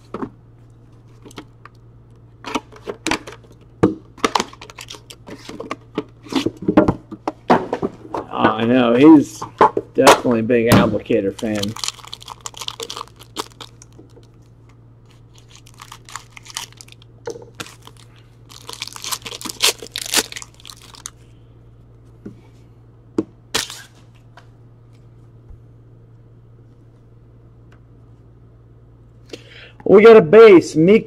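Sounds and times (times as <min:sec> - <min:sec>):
foil wrapper tearing and crinkling: 0:04.5 - 0:05.2, 0:11.3 - 0:14.4, 0:15.1 - 0:21.2, 0:23.6 - 0:24.0.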